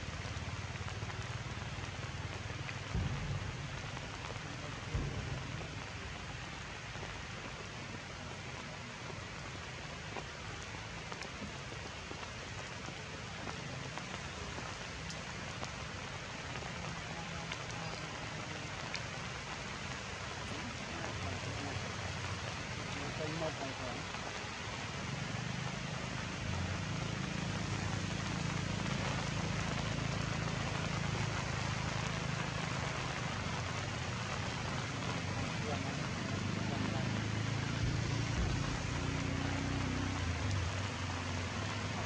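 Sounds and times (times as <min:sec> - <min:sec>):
rain falling on foliage: 0:00.0 - 0:42.0
low thumps: 0:02.8 - 0:07.2, 0:37.8 - 0:39.2.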